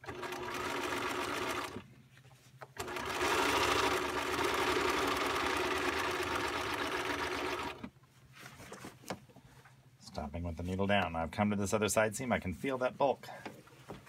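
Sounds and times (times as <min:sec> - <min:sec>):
sewing machine stitching: 0:00.0 - 0:01.8, 0:02.8 - 0:07.9.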